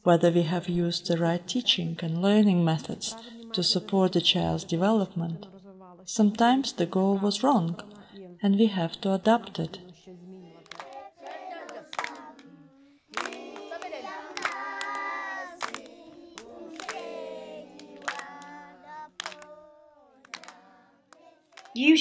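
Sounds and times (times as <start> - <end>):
children singing together: 10.0 - 21.6
children clapping in time: 10.2 - 21.8.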